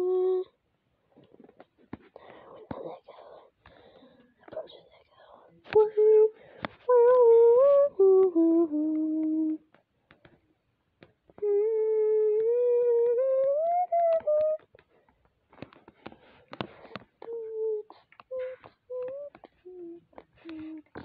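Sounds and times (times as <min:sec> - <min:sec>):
person humming: 0:00.0 - 0:00.6, 0:05.8 - 0:09.7, 0:11.4 - 0:14.8, 0:17.2 - 0:21.0.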